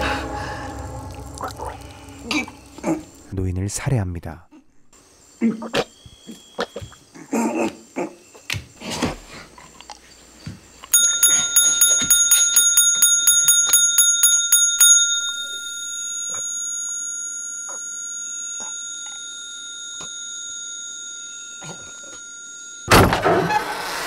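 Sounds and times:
hand bell ringing: 10.9 - 23.0.

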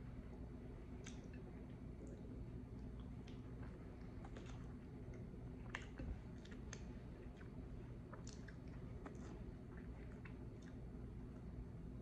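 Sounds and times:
mouth clicks and lip smacks: 1.0 - 2.3, 3.0 - 10.8
person chewing food: 1.0 - 11.6.

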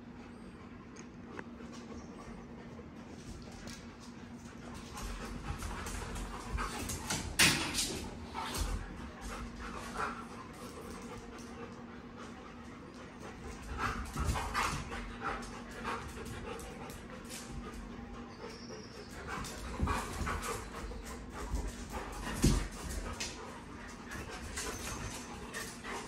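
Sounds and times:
dog panting: 8.0 - 26.0.

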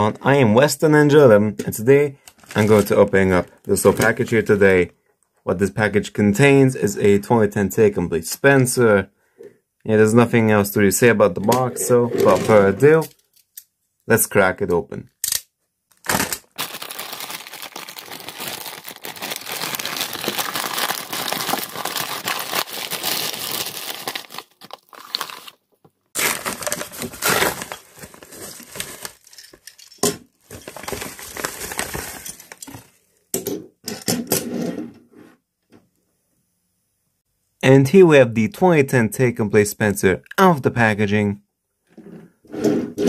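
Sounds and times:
plastic and paper envelopes tearing: 2.3 - 4.2, 15.9 - 25.6, 26.2 - 29.8, 30.4 - 32.8
metal toy set on wooden table: 11.4 - 13.7, 29.2 - 31.0, 32.1 - 35.4.

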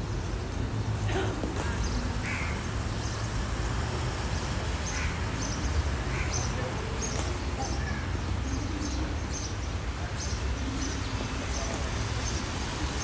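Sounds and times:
faint distant voices: 6.1 - 13.0.

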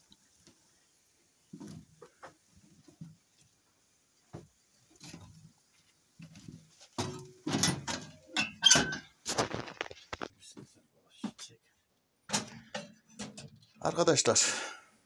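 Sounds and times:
knocking and clatter at oven: 7.0 - 9.1.

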